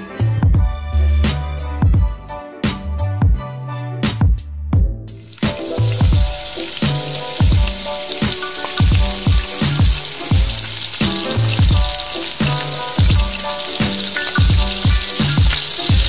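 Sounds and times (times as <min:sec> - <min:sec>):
background music with steady beat: 0:00.0 - 0:16.0
rice balls deep-frying in oil: 0:05.2 - 0:16.0.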